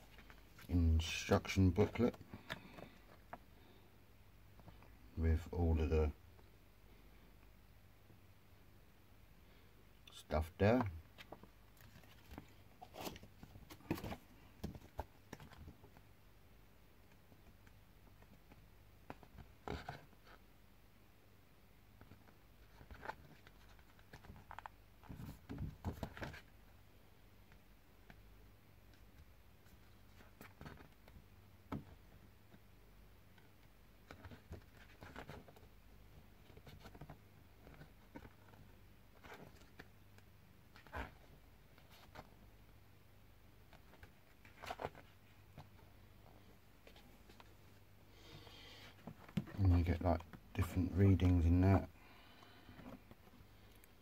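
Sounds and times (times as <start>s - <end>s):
paper and cardboard rustling: 11.2s - 16.0s, 34.0s - 35.7s.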